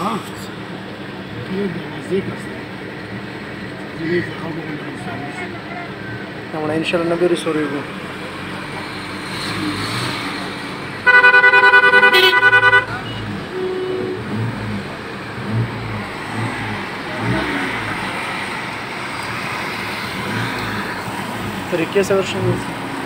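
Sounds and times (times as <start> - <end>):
vehicle horn pulsing: 11.0 - 14.6
vehicle rumble from inside cab: 11.9 - 23.0.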